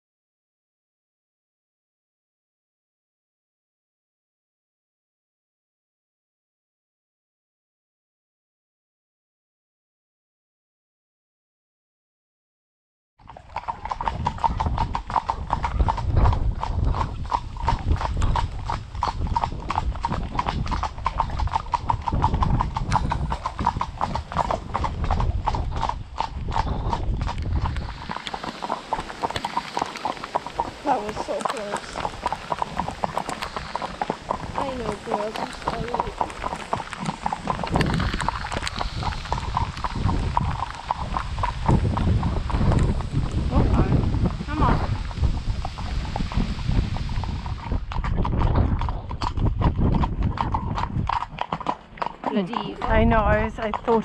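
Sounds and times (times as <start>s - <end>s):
hooves clip-clopping on tarmac: 13.2s - 54.0s.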